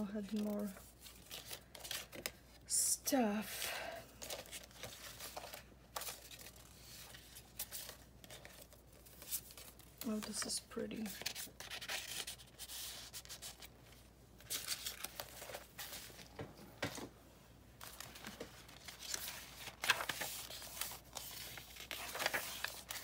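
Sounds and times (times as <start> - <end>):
paper rustling and scraping: 4.2 - 13.7, 17.8 - 23.0.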